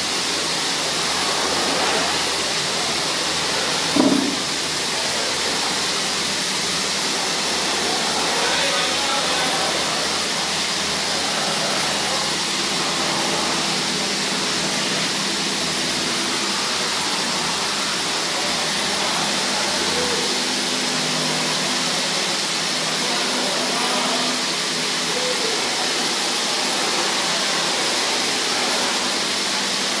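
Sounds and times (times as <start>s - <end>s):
gas torch hissing: 0.0s - 22.4s.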